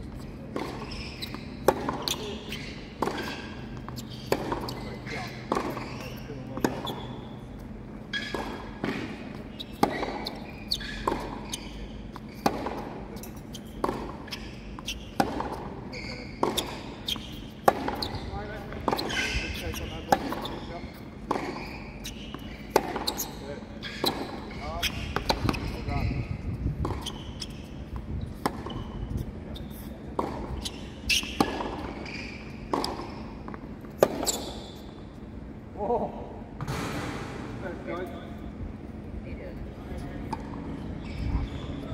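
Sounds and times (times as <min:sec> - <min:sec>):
tennis ball bouncing: 0:00.5 - 0:26.0, 0:26.7 - 0:29.3, 0:30.1 - 0:35.0
racket striking tennis ball: 0:01.6 - 0:02.3, 0:03.0 - 0:04.9, 0:08.1 - 0:10.4, 0:12.4 - 0:15.8, 0:16.4 - 0:20.6, 0:21.2 - 0:23.3, 0:25.1 - 0:25.8, 0:30.2 - 0:32.0, 0:32.7 - 0:33.1, 0:34.0 - 0:34.4.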